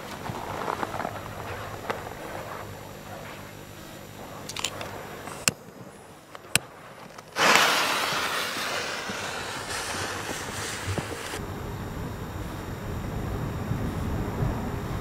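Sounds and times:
fuse sputtering hiss: 0:00.0 - 0:15.0
sharp clicks: 0:04.3 - 0:07.6.

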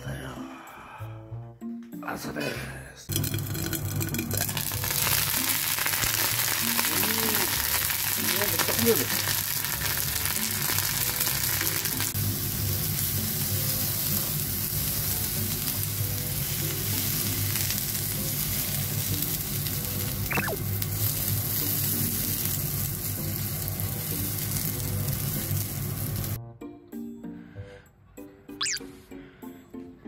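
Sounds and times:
soft background music: 0:00.0 - 0:30.0
food sizzling in oil: 0:03.1 - 0:26.4.

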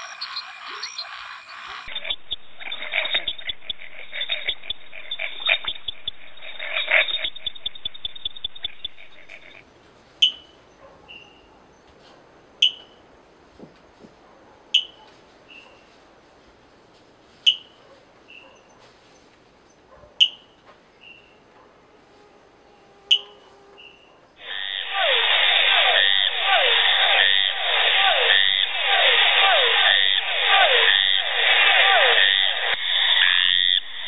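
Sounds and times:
treefrog fast-pulsed call: 0:00.0 - 0:04.4, 0:12.6 - 0:13.0, 0:14.7 - 0:15.8, 0:17.4 - 0:18.5, 0:20.2 - 0:34.0
frog chirping: 0:00.0 - 0:11.8, 0:12.6 - 0:13.1, 0:14.7 - 0:15.9, 0:17.4 - 0:18.8, 0:20.1 - 0:28.8, 0:29.4 - 0:31.3, 0:31.9 - 0:34.0.

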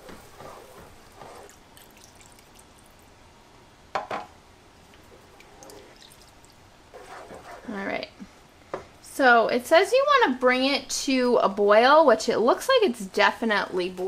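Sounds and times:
wooden spoon stirring thick sauce: 0:00.0 - 0:01.6, 0:06.9 - 0:07.8.

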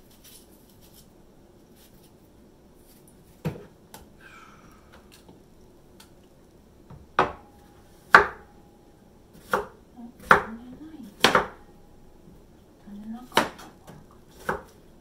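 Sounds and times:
knife chopping on wooden board: 0:07.2 - 0:07.5, 0:08.1 - 0:08.5, 0:09.4 - 0:10.6, 0:11.2 - 0:11.6, 0:13.3 - 0:14.8.

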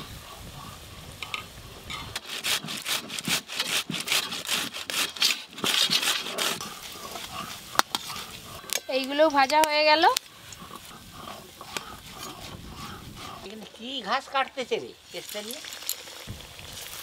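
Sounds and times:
tomato rasping on metal grater: 0:02.2 - 0:08.4.

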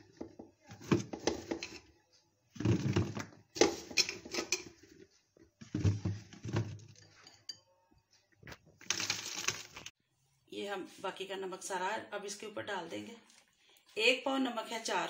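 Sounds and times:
chillies clattering into glass jar: 0:08.8 - 0:09.9.

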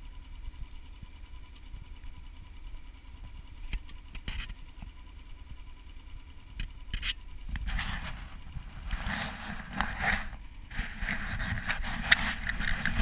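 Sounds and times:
small boat motor running: 0:00.0 - 0:13.0
short rattles: 0:06.6 - 0:13.0.

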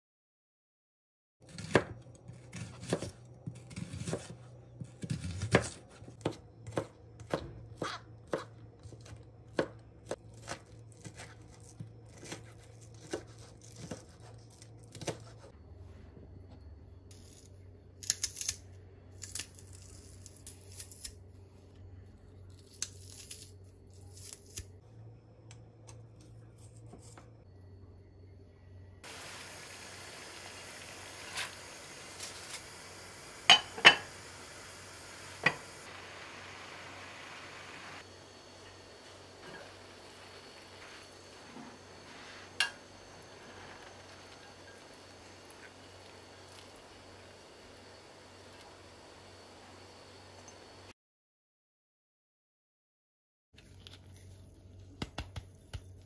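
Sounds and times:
knife chopping on cutting board: 0:01.6 - 0:09.8.

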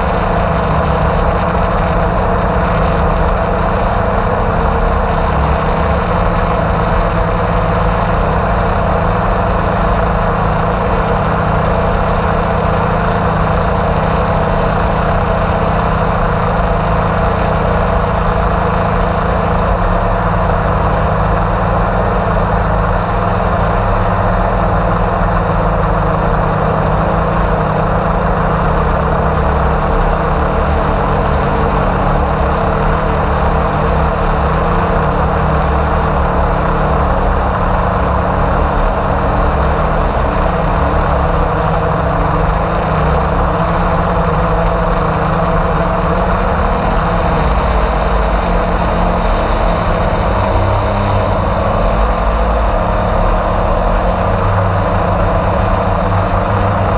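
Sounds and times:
drone motors and propellers: 0:00.0 - 0:56.9
low unsteady rumble: 0:00.0 - 0:56.9.

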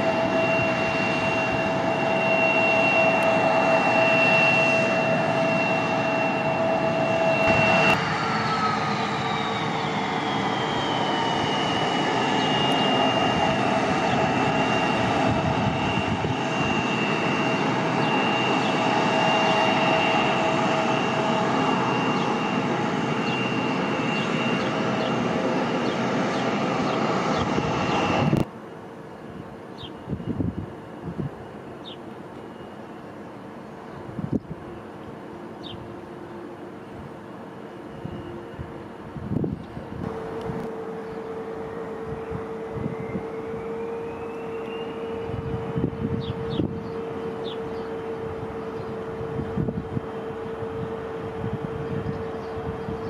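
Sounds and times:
jet engines idling whine: 0:00.0 - 0:53.0.

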